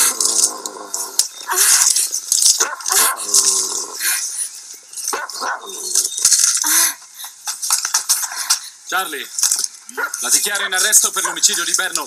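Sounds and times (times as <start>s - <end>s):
dog barking: 2.6s - 3.2s, 5.1s - 5.7s.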